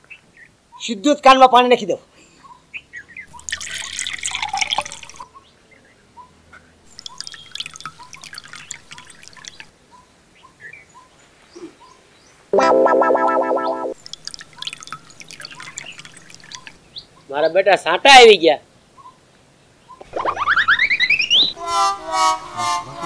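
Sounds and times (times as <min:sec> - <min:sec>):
water trickling and dripping: 0:03.3 - 0:05.2, 0:06.9 - 0:09.7, 0:13.9 - 0:16.9.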